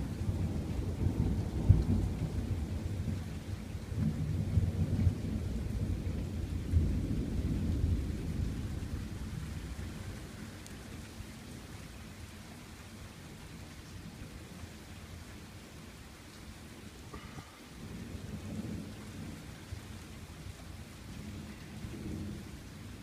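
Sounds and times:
thunder rumbling: 0.0s - 10.8s, 17.2s - 23.0s
steady rain: 0.0s - 23.0s.

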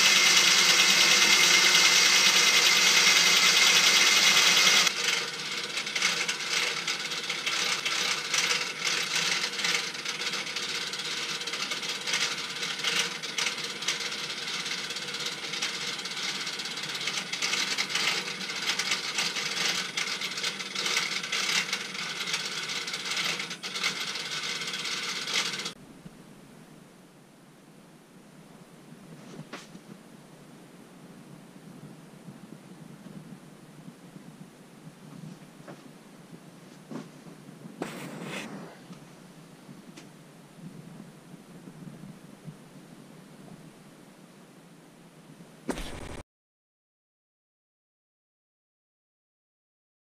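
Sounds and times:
electric motor whining: 0.0s - 13.9s
dense gear rattle: 0.0s - 25.7s.

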